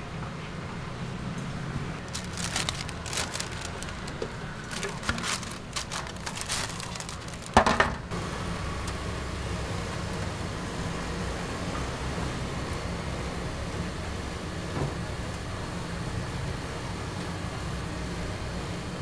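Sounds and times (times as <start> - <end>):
paper rustling: 2.0 - 7.9.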